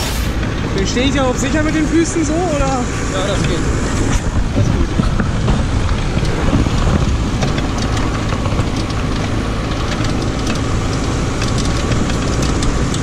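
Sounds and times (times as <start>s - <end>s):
buggy engine running: 0.0s - 13.0s
light rattling ticks: 4.9s - 13.0s.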